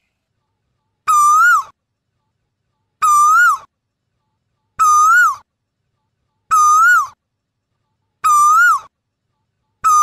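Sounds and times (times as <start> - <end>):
bird whistled call: 1.1 - 1.7, 3.0 - 3.7, 4.8 - 5.4, 6.5 - 7.2, 8.2 - 8.9.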